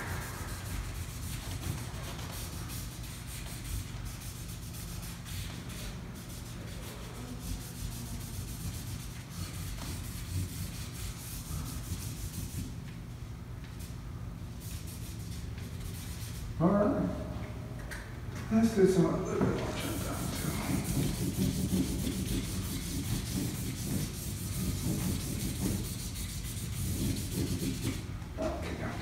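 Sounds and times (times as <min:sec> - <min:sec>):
steady low hum: 0:00.0 - 0:29.0
marker pens scratching on paper: 0:19.6 - 0:28.0.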